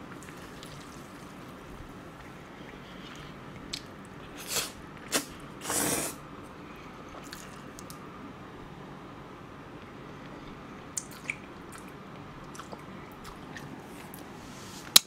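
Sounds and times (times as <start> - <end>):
steady low hum: 0.0 - 15.0
man slurping noodles: 4.4 - 6.2.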